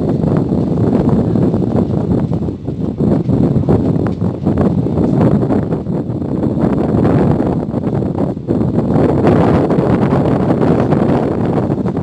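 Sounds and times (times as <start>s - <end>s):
low gusty rumbling noise: 0.0s - 12.0s.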